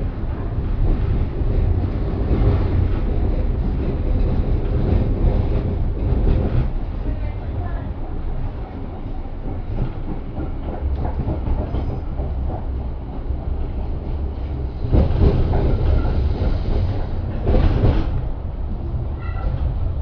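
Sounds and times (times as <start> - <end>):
tram rumbling along rails: 0.0 - 20.0.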